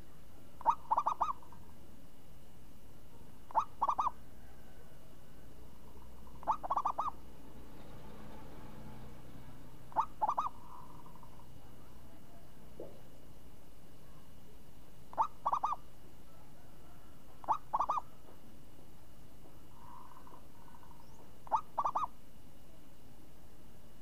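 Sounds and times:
dove cooing: 0.0 - 1.6, 3.5 - 5.1, 5.8 - 7.3, 9.9 - 12.2, 15.1 - 18.4, 19.8 - 22.2.

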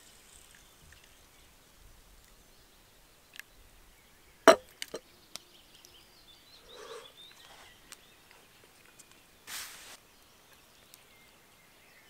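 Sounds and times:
faint bird calls: 6.5 - 8.5.

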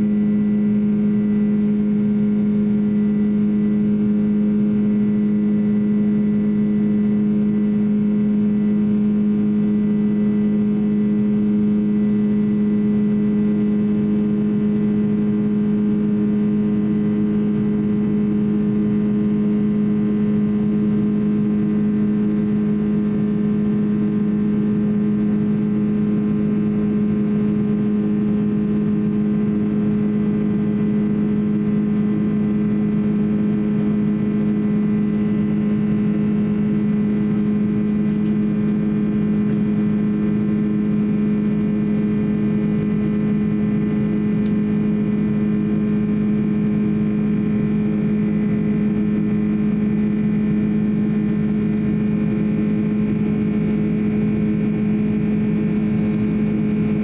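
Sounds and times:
jet engine drone: 0.0 - 57.0.

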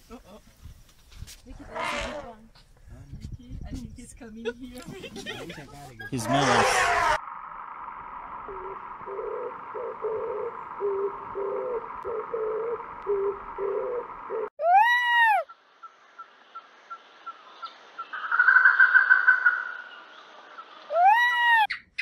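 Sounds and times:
peacock wailing: 6.1 - 7.2, 20.9 - 21.8
steady hum: 7.2 - 14.5.

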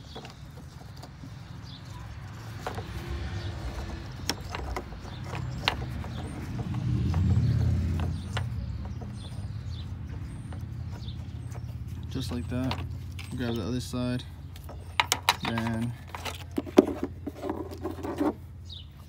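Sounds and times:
vehicle engine rumble: 0.0 - 19.0
hands twisting wire clicks: 2.2 - 9.2, 9.8 - 16.7.

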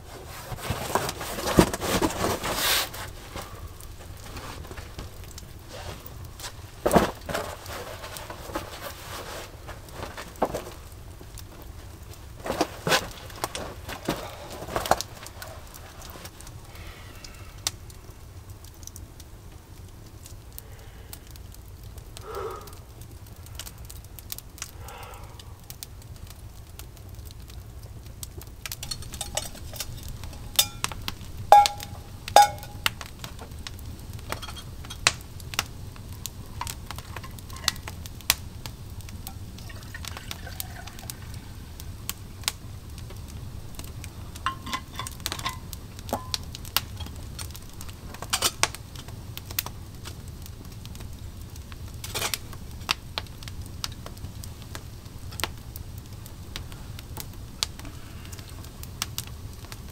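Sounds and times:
campfire crackling: 0.0 - 59.9
metal cookware clinking: 28.8 - 32.9, 34.3 - 35.0, 44.4 - 47.2.

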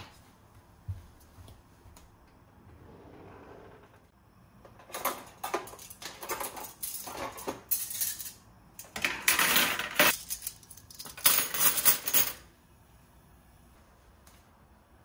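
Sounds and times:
metal kitchenware clinking and scraping: 4.8 - 12.4.

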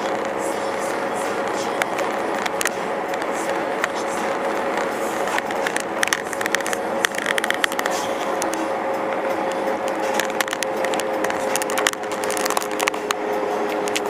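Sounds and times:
small clicks and rattles: 0.0 - 8.6, 9.5 - 14.0
car road and engine hum: 0.0 - 14.0.

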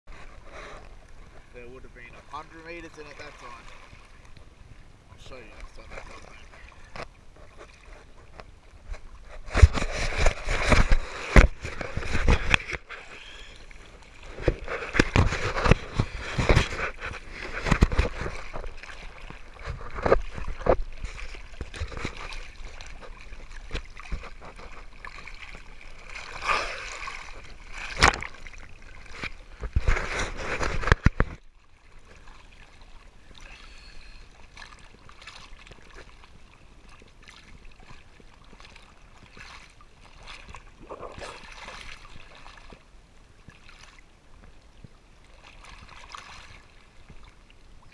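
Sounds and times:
sea water splashing: 0.1 - 47.9.

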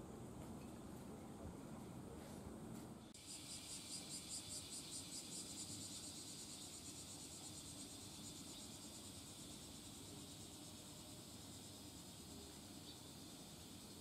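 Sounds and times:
insects chirring: 3.2 - 14.0.

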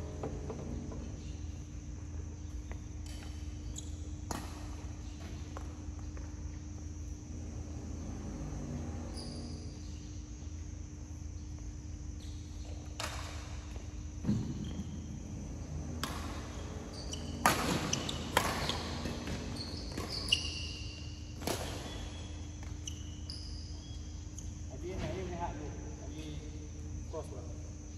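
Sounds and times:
shoes squeaking on court: 0.0 - 25.4
steady low hum: 0.0 - 27.9
racket striking shuttlecock: 15.9 - 20.1.

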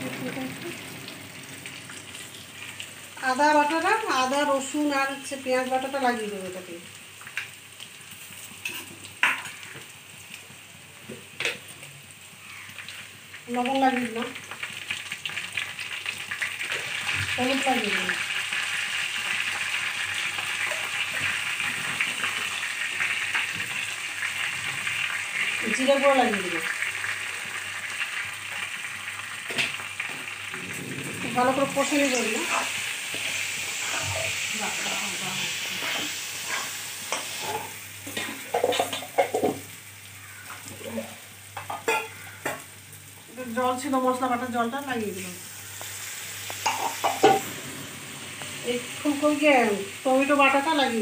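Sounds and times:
food sizzling in hot oil: 0.0 - 51.0
metal spatula scraping a pan: 31.4 - 34.5, 35.7 - 39.0, 46.6 - 47.8.

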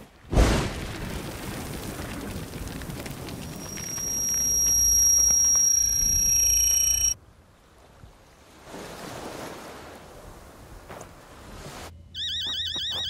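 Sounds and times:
high steady ringing tones: 3.6 - 7.2, 12.0 - 13.0.

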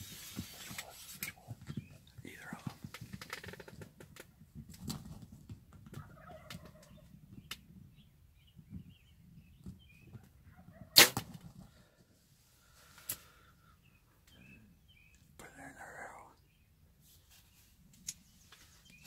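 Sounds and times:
faint clicks and rustles: 0.0 - 7.6
turkeys calling softly: 5.7 - 11.0
bow release crack: 11.0 - 11.4, 13.0 - 13.3.

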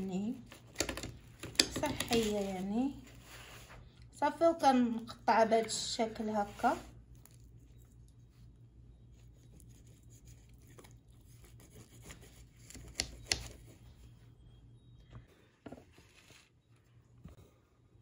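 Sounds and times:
pizza cutter crunching crust: 9.3 - 13.7.

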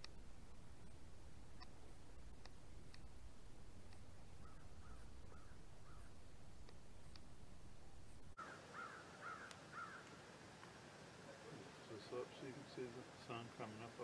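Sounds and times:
low background rumble: 0.0 - 8.4
crows cawing: 4.4 - 6.2, 8.4 - 10.2.

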